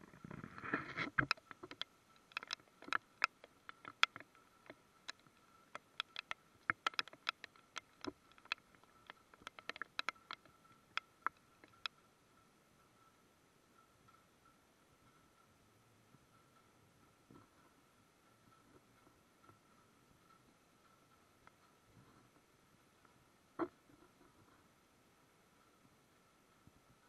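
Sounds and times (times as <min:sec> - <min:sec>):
raindrops ticking on camera: 0:00.1 - 0:12.1.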